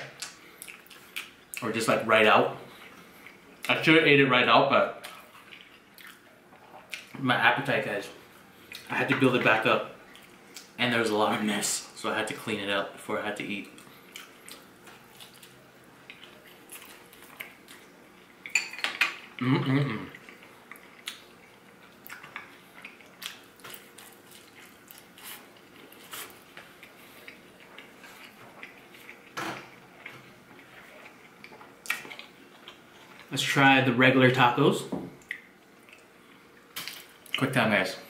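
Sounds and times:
chewing and crunching: 0.2s - 1.8s, 5.0s - 7.2s, 13.6s - 19.4s, 20.1s - 33.4s, 35.2s - 37.4s
hummed voice sound: 19.4s - 20.2s
mouth sounds: 19.4s - 20.2s.

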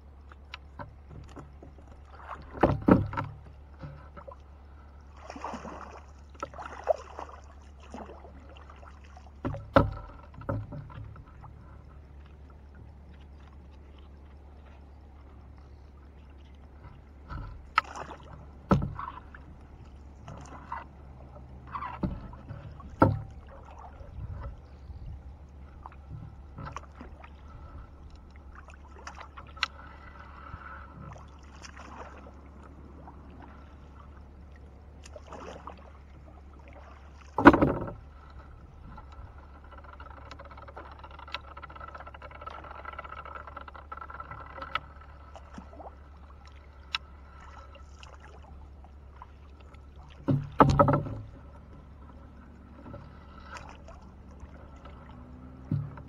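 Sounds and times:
knocks on wooden boat: 2.5s - 4.3s, 9.4s - 11.2s, 17.2s - 19.3s, 21.8s - 23.5s, 37.4s - 38.0s, 50.2s - 51.6s, 55.5s - 56.0s
water splashing and dripping: 5.2s - 11.0s, 16.7s - 24.5s, 31.0s - 32.4s, 35.0s - 38.4s, 45.3s - 51.3s.

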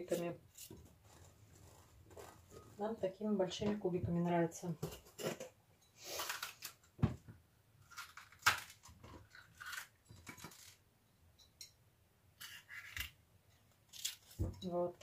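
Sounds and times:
peppers torn open by hand: 6.1s - 6.8s, 7.8s - 10.8s, 13.9s - 14.4s.

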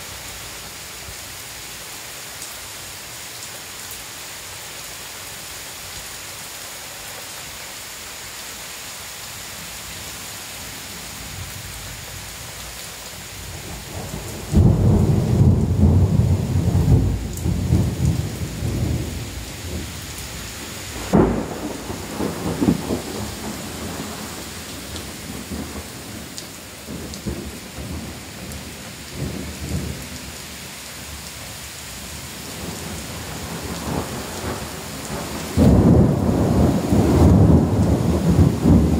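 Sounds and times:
heavy rain falling: 0.0s - 38.9s
thunder rumbling: 13.5s - 30.0s, 32.5s - 38.9s.

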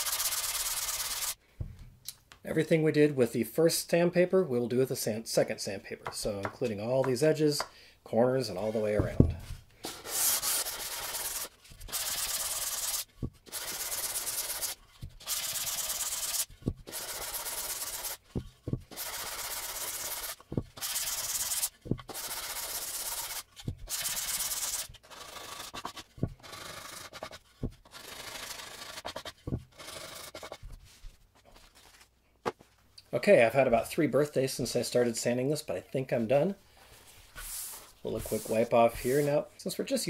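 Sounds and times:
sandpaper rubbing on wood: 0.0s - 1.4s, 10.0s - 31.0s, 37.4s - 39.4s.

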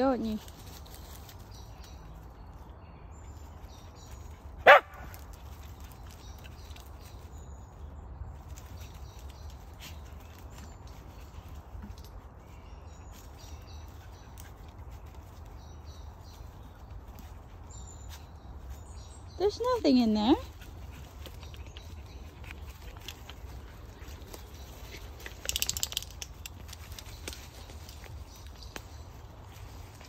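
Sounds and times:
quiet outdoor background: 0.0s - 30.0s
dog barking: 4.6s - 5.0s.

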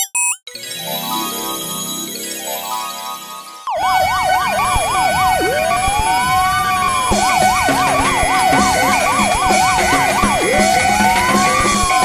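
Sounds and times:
electronic siren: 3.7s - 12.0s
steady held tone: 3.7s - 12.0s
rhythmic beat: 5.3s - 12.0s.

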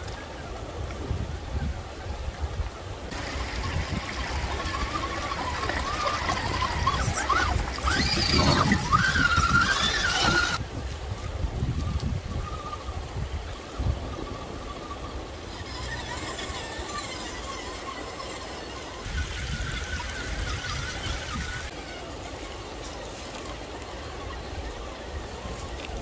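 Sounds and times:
toy car electric motor whine: 3.1s - 10.6s, 13.7s - 26.0s
creek water running over stones: 3.1s - 26.0s.

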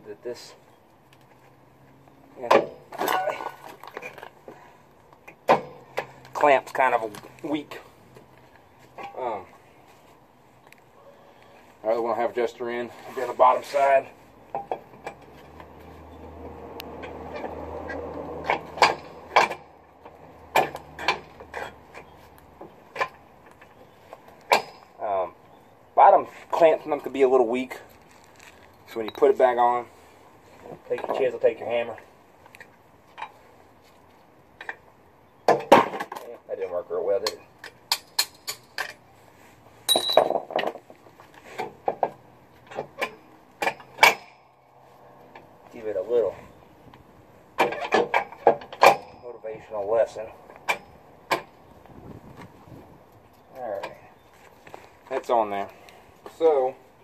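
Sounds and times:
metal clanks and knocks: 14.5s - 15.8s, 16.9s - 23.8s, 39.9s - 40.9s, 47.6s - 49.4s
metallic clinks and knocks: 39.9s - 40.8s.

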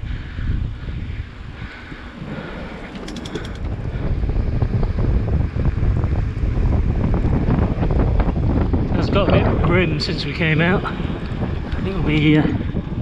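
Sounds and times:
wind rumble on microphone: 0.0s - 13.0s
bike rattling over rough ground: 1.7s - 6.3s
sharp clicks: 2.9s - 3.7s.

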